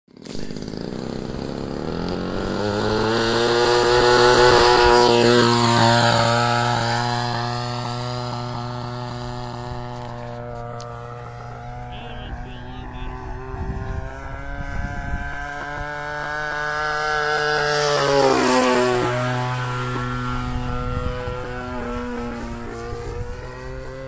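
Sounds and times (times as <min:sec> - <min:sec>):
model plane engine: 0:00.1 - 0:24.0.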